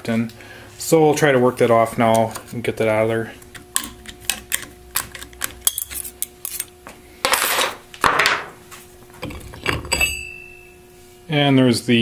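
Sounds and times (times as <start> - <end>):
metal ring clinking on workbench: 9.2 - 10.8.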